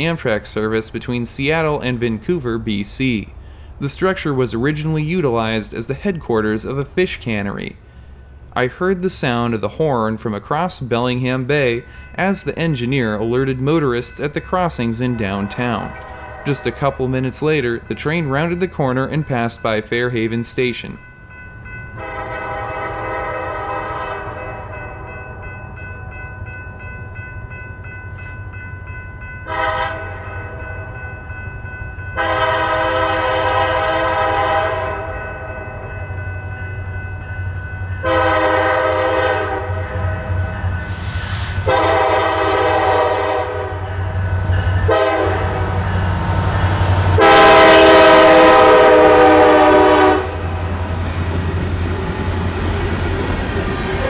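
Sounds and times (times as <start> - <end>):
diesel locomotive rumble: 0.0 - 54.0
locomotive air horn blasts: 15.8 - 16.9, 22.0 - 24.8, 29.5 - 30.6, 32.2 - 35.2, 38.0 - 40.5, 41.6 - 44.2, 44.9 - 45.8, 47.2 - 50.6.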